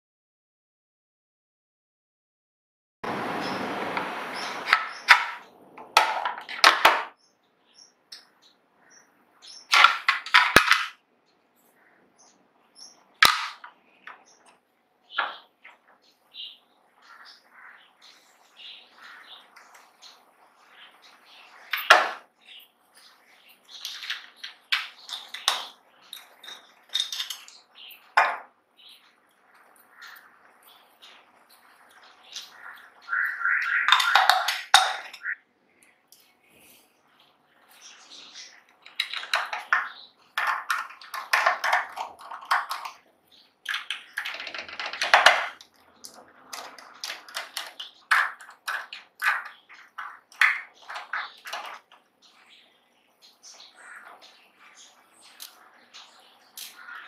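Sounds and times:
metal screwdriver bits clattering: 23.7s - 27.6s.

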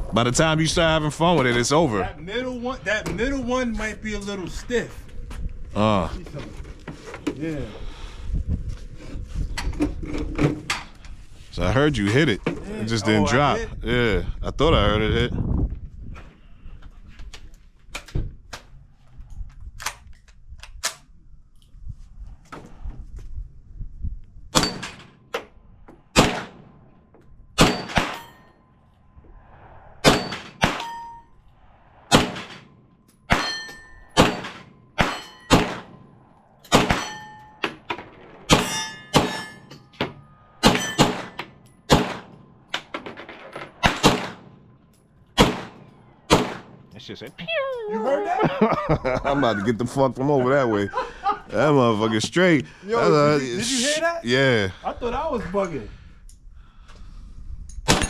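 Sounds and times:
steel plate clanging: 24.6s - 25.2s, 27.6s - 28.6s, 32.2s - 45.1s
gunshots: 26.1s - 26.9s, 27.6s - 28.4s, 30.0s - 46.9s.

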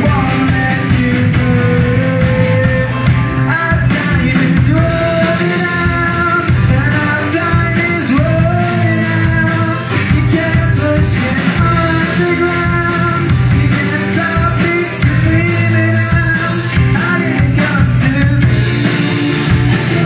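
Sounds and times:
drum kit: 0.0s - 20.0s
electric guitar: 0.0s - 20.0s
keyboard: 0.0s - 20.0s
man singing: 0.0s - 20.0s.

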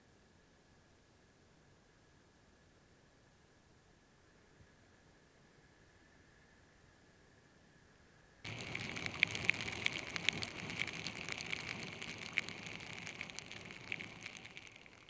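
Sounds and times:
hiss of rain and road spray: 8.5s - 15.0s
raindrops striking camera housing: 8.5s - 15.0s.

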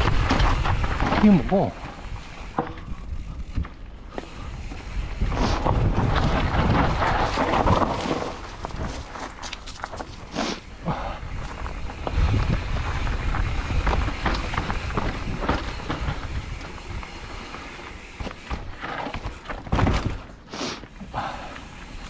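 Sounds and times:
bike rattling over bumps: 0.0s - 22.0s
bike tyres rolling over dirt: 0.0s - 22.0s
wind on microphone: 10.9s - 17.2s.

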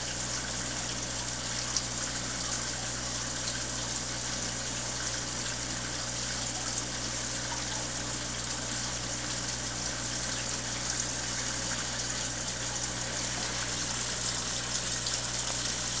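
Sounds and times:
water rushing in aquarium filter: 0.0s - 16.0s.

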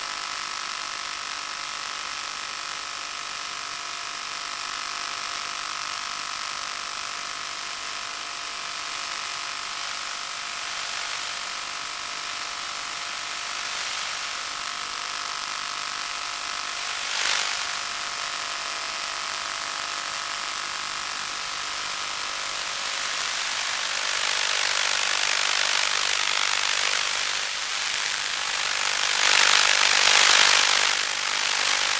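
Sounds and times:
radio static hiss: 6.3s - 31.9s.

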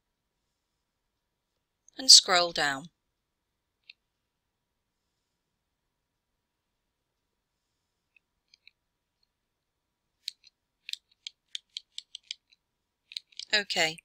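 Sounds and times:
mouse scroll wheel ticking: 10.2s - 13.6s.

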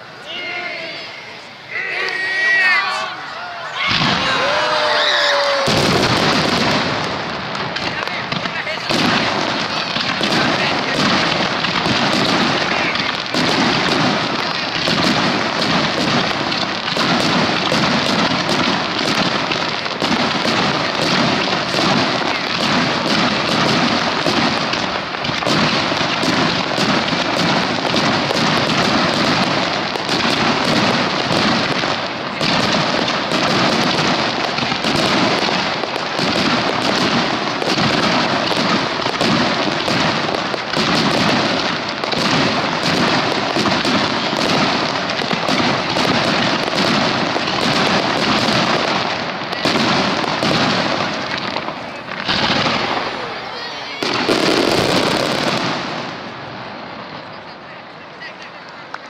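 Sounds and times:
fireworks bursting: 0.0s - 59.0s.

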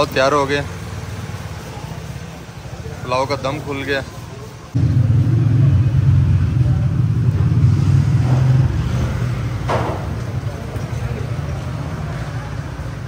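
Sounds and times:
loud low rumble: 4.8s - 9.5s.

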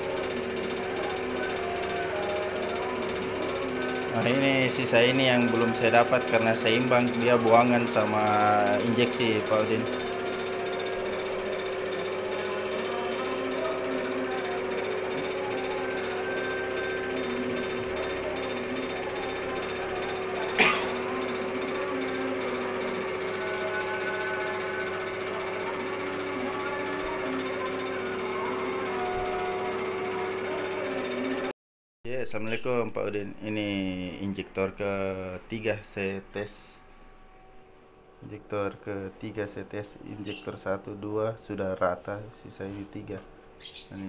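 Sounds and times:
diesel injector pulsing: 0.0s - 31.5s
test bench running hum: 0.0s - 31.5s, 32.1s - 44.0s.

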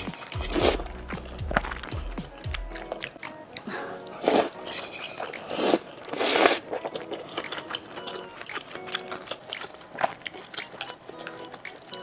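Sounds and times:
person slurping noodles: 0.4s - 1.9s, 3.8s - 6.9s
chewing mouth clicks: 5.1s - 12.0s.

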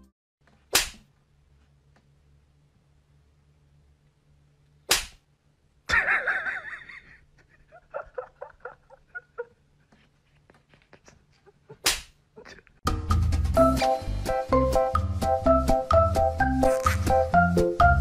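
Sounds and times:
whip-crack sound effect: 0.7s - 1.1s, 4.9s - 5.2s, 11.8s - 12.2s.

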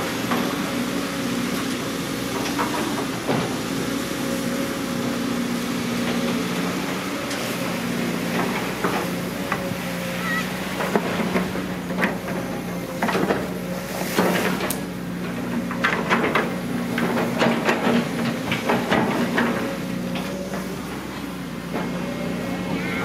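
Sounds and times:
excavator diesel engine running: 0.0s - 23.0s
excavator bucket clanking: 8.2s - 23.0s.

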